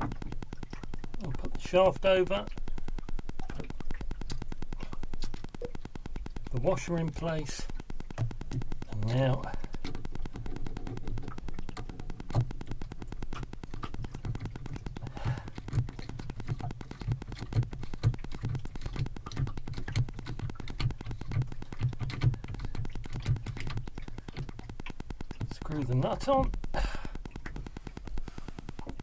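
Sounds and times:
low steady hum: 0.0 - 29.0
metal parts clicking and knocking: 5.1 - 5.7.

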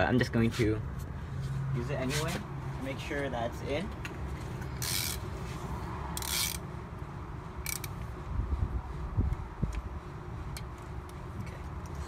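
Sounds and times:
ratchet wrench clicking: 4.6 - 5.3, 6.1 - 6.7, 7.6 - 8.1.

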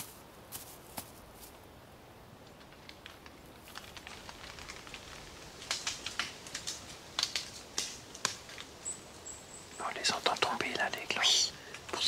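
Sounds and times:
footsteps in dry leaves: 0.0 - 1.6.

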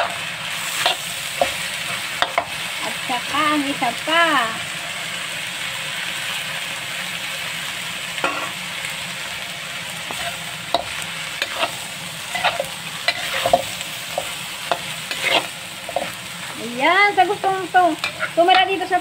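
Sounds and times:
metal spatula scraping a pan: 0.0 - 2.6, 10.1 - 16.5, 18.0 - 18.8
meat and tofu sizzling in a pan: 0.0 - 19.0.

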